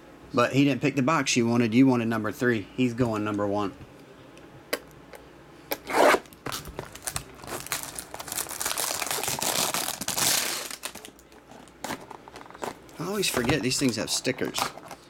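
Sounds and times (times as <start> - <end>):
plastic wrap crinkling and tearing: 6.2 - 15.0.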